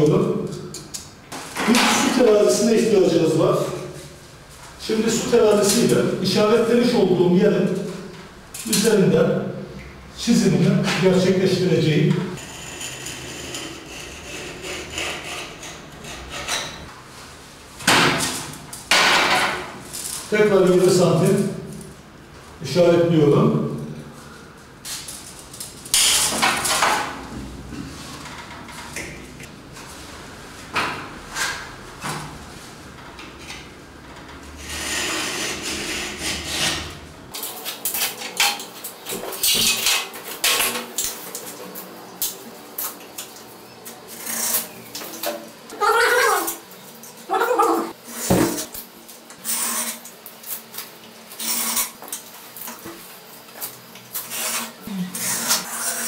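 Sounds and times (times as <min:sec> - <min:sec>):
tool scraping plaster: 0:12.4 - 0:16.8, 0:34.6 - 0:37.0, 0:49.4 - 0:50.0, 0:51.4 - 0:52.0, 0:54.2 - 0:56.0
metal tool scratching plaster: 0:54.2 - 0:56.0.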